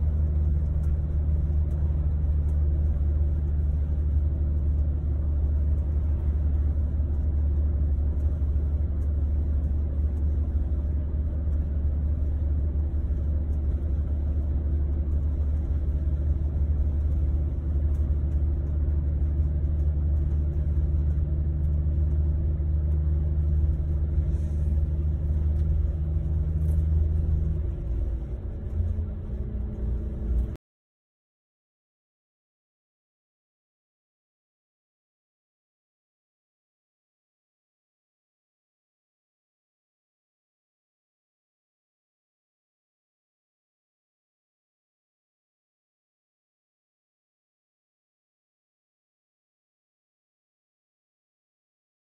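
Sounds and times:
bus engine drone: 0.0s - 30.6s
road rumble: 0.0s - 30.6s.

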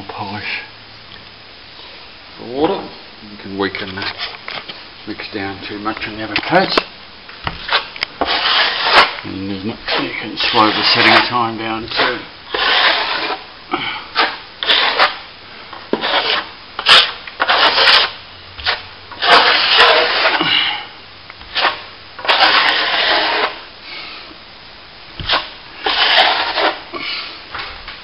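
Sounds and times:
trowel scraping plaster: 7.5s - 13.5s, 14.1s - 20.5s, 21.4s - 23.7s, 25.2s - 27.0s.

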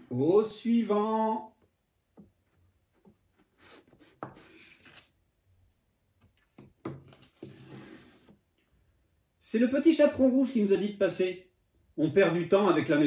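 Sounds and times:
cards rubbing on wood: 3.0s - 5.1s.

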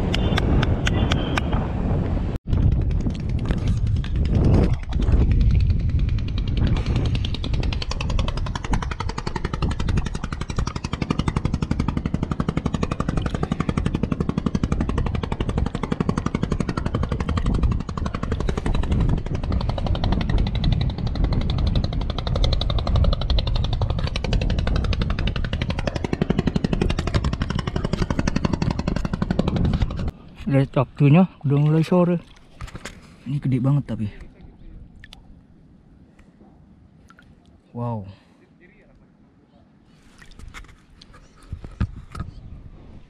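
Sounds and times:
small engine running: 4.0s - 30.1s.

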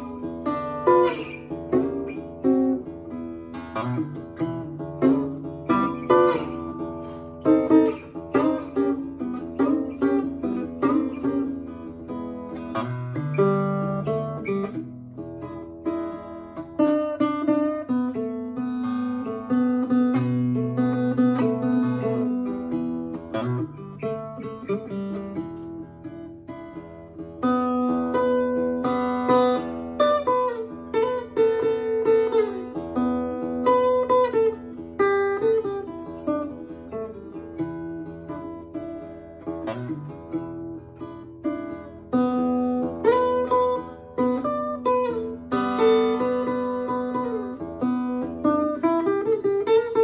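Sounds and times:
acoustic guitar slow blues: 0.0s - 50.0s.

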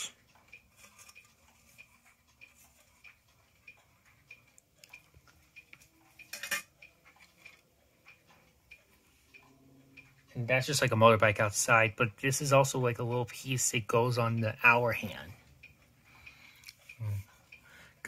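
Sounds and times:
metal clock dial clinking: 4.4s - 9.5s.

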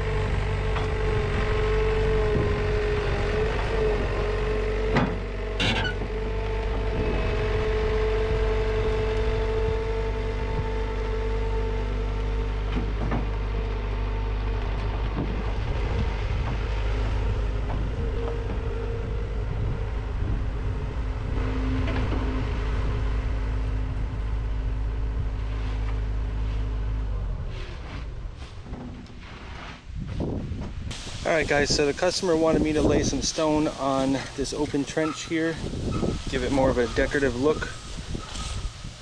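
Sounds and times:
skid steer loader engine running: 0.0s - 29.5s.

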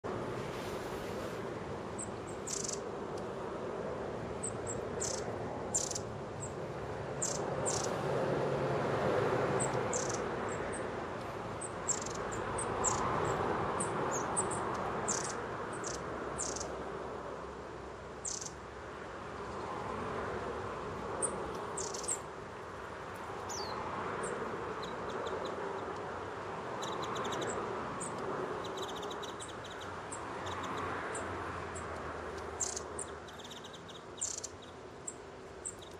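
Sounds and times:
steady rushing noise: 0.0s - 26.8s
small birds calling high notes: 2.0s - 2.9s, 4.4s - 6.6s, 7.2s - 7.9s, 9.6s - 10.9s, 11.6s - 16.7s, 18.2s - 18.6s, 21.2s - 22.2s, 32.6s - 35.9s.

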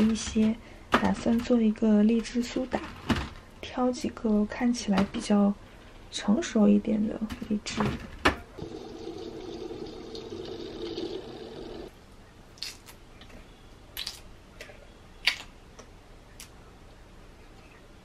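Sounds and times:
tap water running into sink: 8.6s - 11.9s.

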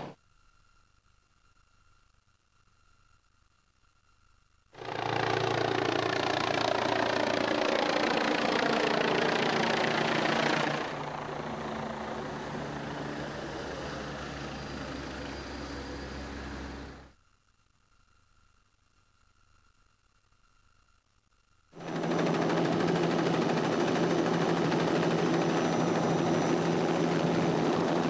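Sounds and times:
helicopter flying low: 4.8s - 17.1s, 21.8s - 28.0s.

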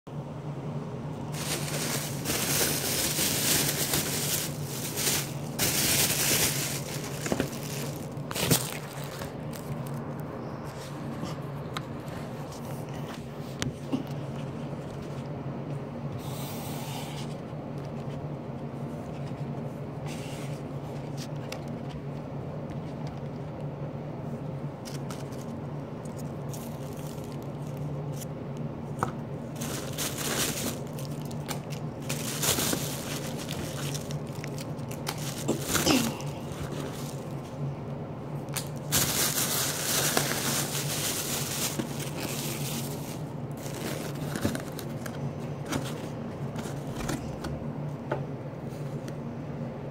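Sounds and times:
steady low hum: 0.1s - 49.9s
plastic bag rustling: 1.2s - 11.4s, 24.8s - 28.3s, 28.9s - 37.6s, 38.5s - 47.4s
takeout containers handled: 1.3s - 15.2s, 29.0s - 37.6s, 38.5s - 47.6s.

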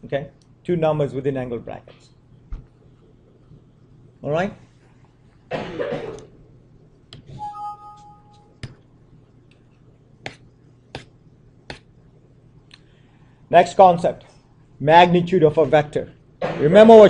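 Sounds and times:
short steady tone: 7.4s - 8.6s.

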